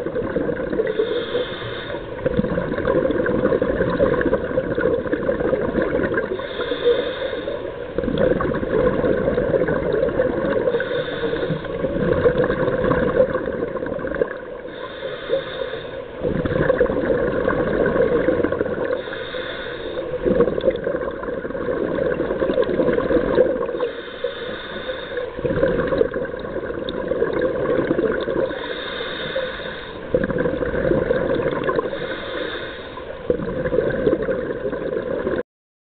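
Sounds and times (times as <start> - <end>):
exhaled bubbles underwater: 0.0 - 35.4
regulator hiss on inhale: 0.6 - 2.3, 6.2 - 8.0, 10.6 - 12.0, 14.6 - 16.8, 18.8 - 20.7, 23.6 - 26.4, 28.4 - 30.3, 31.6 - 33.3.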